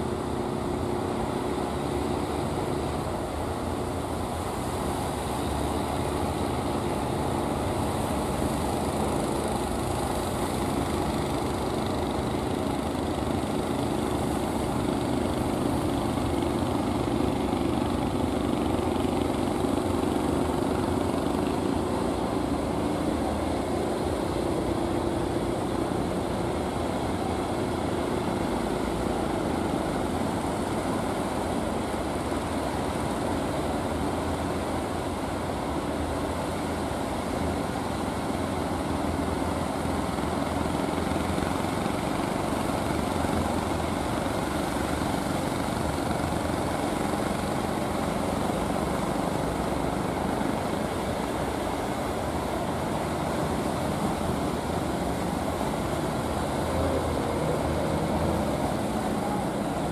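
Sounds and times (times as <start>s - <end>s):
boat engine running: 0.0s - 59.9s
waves rushing and spray: 12.8s - 59.9s.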